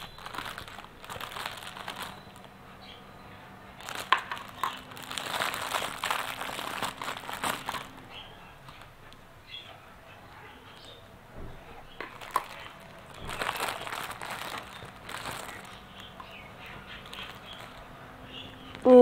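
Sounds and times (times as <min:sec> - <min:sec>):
plastic bag crinkling: 0:00.0 - 0:02.6, 0:03.7 - 0:08.9, 0:11.9 - 0:19.0.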